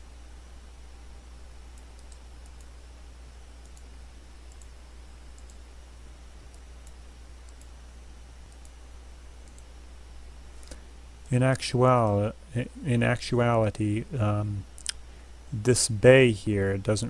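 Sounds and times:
low electrical hum: 0.0s - 17.0s
computer mouse clicking: 1.8s - 2.7s, 4.5s - 4.7s, 5.4s - 5.6s, 6.5s - 7.7s, 8.5s - 8.8s, 9.4s - 9.7s.

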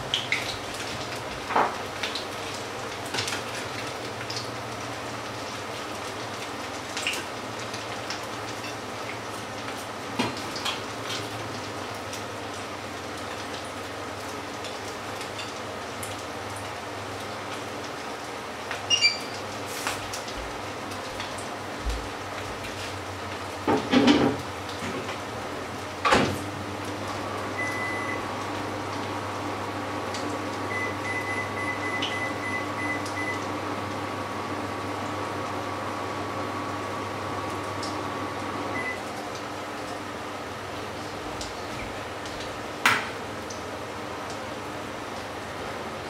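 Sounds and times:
pancake sizzling in oil: 0.0s - 25.5s
appliance hum with high whine: 0.0s - 46.0s
kitchen knocks and clatter: 23.7s - 25.1s.

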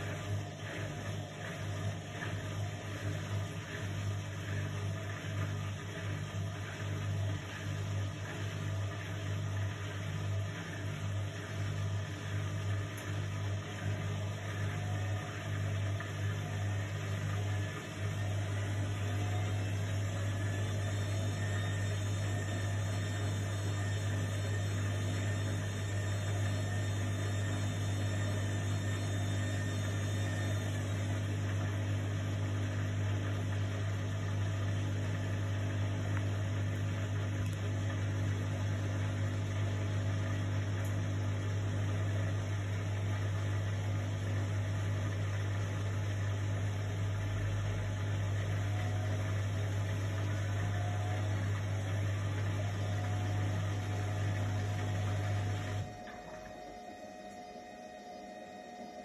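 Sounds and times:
washing machine humming: 0.0s - 59.0s
faint high whine: 46.8s - 59.0s.

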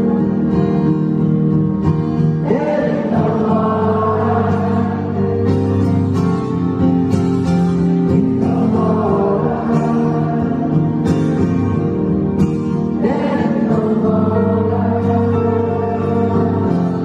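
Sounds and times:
strummed acoustic guitar: 0.0s - 17.0s
man singing: 2.4s - 5.6s, 8.1s - 11.2s, 12.9s - 17.0s.

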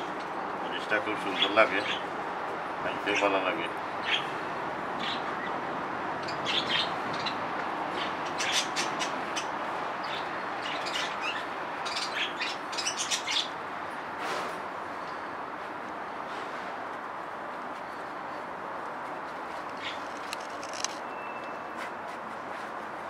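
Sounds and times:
small birds chirping: 0.0s - 2.2s, 2.9s - 5.6s, 6.2s - 13.6s, 19.6s - 21.7s
steady background noise: 0.0s - 23.0s.

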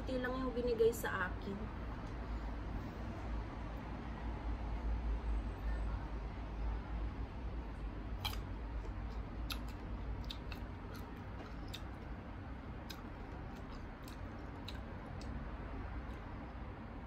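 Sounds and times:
steady low hum: 0.0s - 17.0s
crunchy chewing: 8.2s - 16.7s.

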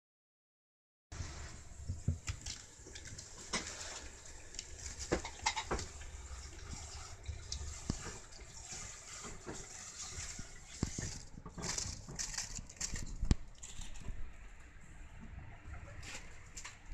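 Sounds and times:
kitten claws scratching wicker: 6.6s - 14.2s.

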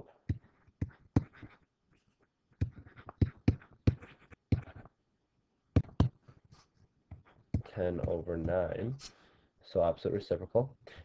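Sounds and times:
stylus tapping and scratching: 0.2s - 5.0s, 5.7s - 9.0s.

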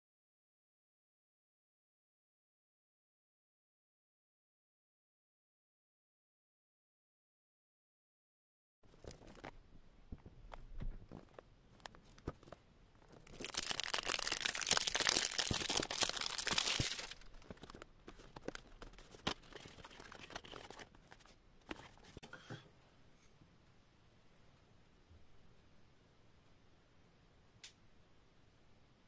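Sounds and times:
cardboard box rustling: 10.8s - 22.2s
cellophane tearing and crinkling: 11.1s - 22.2s.

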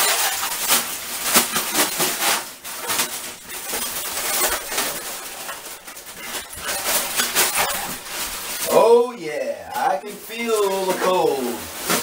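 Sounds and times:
ice cubes splashing into water: 0.0s - 8.8s
plastic bag rustling: 0.0s - 9.0s.

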